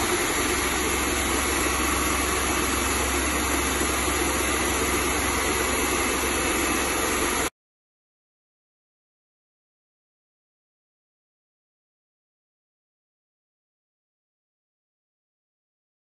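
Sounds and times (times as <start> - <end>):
paint sprayer pump humming: 0.0 - 7.5.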